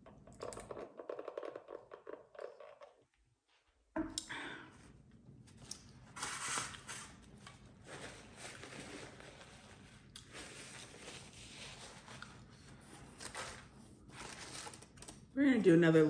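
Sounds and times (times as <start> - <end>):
paper napkin rustling: 6.1 - 15.1.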